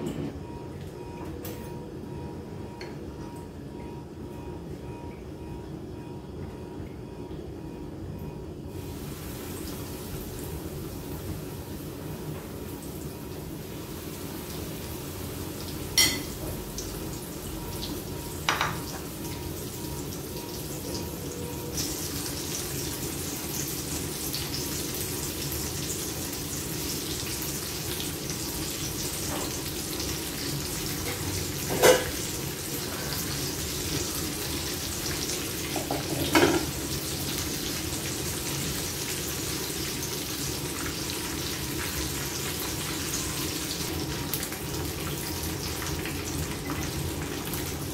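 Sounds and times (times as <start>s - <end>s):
chicken sizzling in frying oil: 8.7s - 47.9s
metal kitchenware clinks: 16.0s - 16.4s.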